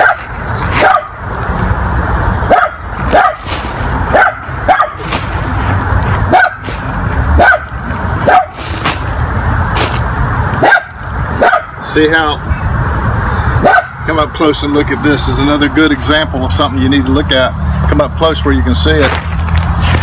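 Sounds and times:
dog barking: 0.0 - 1.2, 2.5 - 3.5, 4.1 - 5.1, 6.3 - 8.7, 10.6 - 11.8, 13.6 - 14.0.

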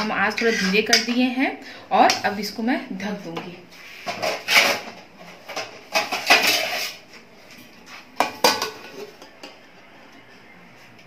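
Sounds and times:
spoon scraping a metal pan: 0.0 - 1.0, 6.0 - 7.0.

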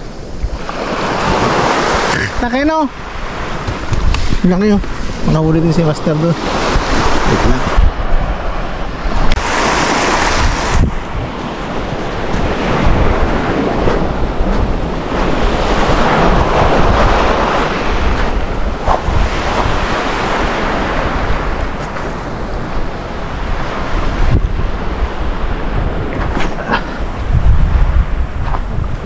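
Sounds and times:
surf washing on gravel shore: 0.0 - 29.0
wind buffeting microphone: 0.0 - 29.0.

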